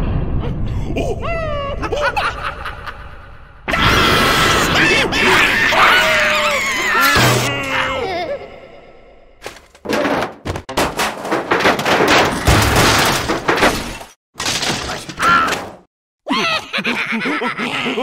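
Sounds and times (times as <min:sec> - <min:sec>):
rubble clattering down: 0:09.4 - 0:15.0
cartoon concrete crashing and crumbling: 0:09.4 - 0:15.9.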